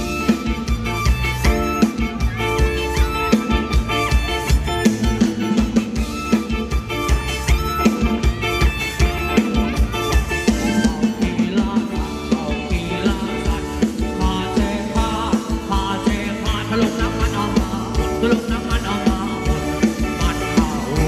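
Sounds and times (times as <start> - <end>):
drum kit beat: 0.0 - 21.0
electric guitars and bass: 0.0 - 21.0
person singing: 10.3 - 21.0.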